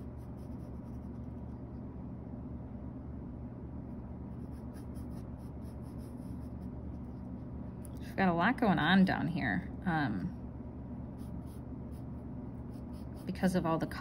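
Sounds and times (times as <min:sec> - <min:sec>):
pencil sketching on paper: 0:00.0 - 0:01.4, 0:04.3 - 0:06.7, 0:11.2 - 0:13.6
low electrical hum: 0:00.0 - 0:14.0.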